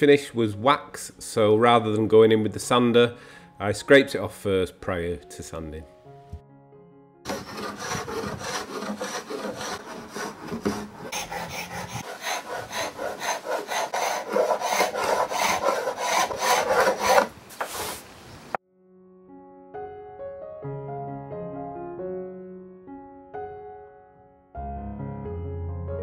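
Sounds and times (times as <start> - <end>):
hand scraper scraping wood: 7.3 - 18.1.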